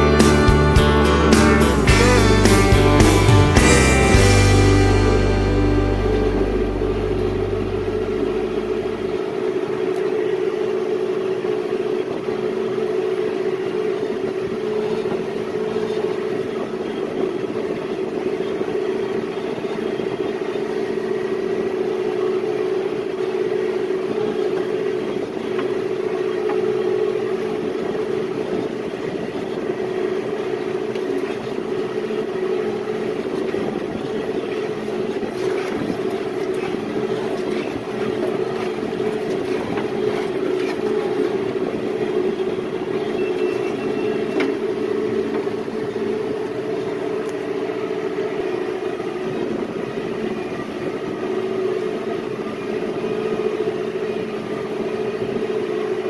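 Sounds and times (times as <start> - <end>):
tractor diesel engine under load: 0.0 - 9.5.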